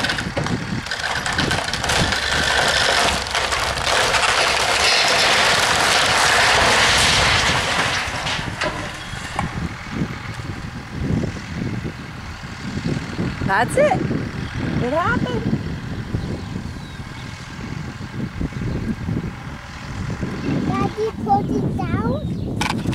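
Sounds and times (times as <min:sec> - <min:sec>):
barn collapsing crash: 0:00.0 - 0:10.6
tractor engines running: 0:00.0 - 0:22.9.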